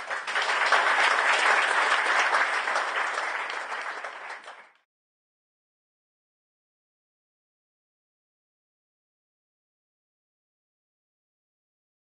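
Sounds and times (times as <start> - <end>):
audience applauding: 0.0 - 4.9.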